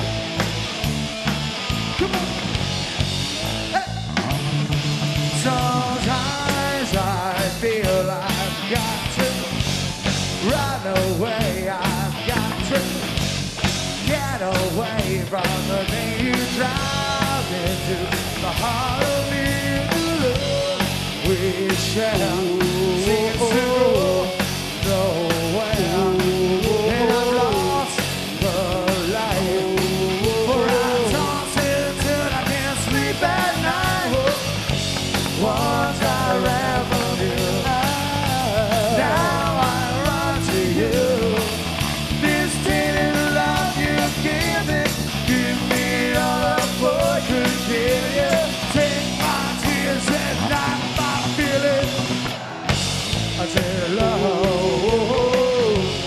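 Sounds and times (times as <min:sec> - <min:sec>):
live rock band: 0:00.0 - 0:56.0
person singing: 0:14.1 - 0:34.6, 0:35.3 - 0:52.1, 0:53.4 - 0:56.0.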